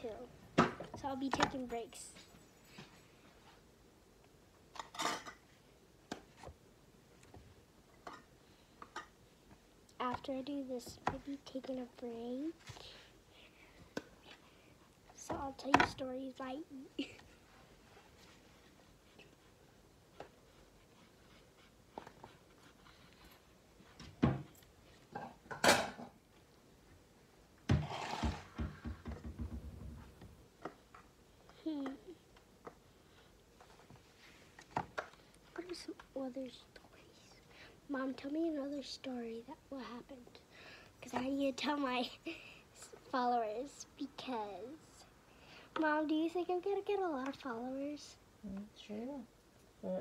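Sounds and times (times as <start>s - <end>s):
short scrape: 27.8s - 28.4s.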